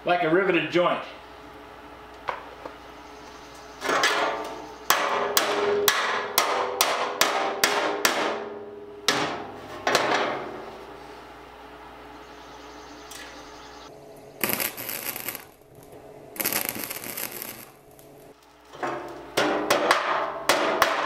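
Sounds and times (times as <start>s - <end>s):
hammer striking steel sheet: 4.0s - 10.4s.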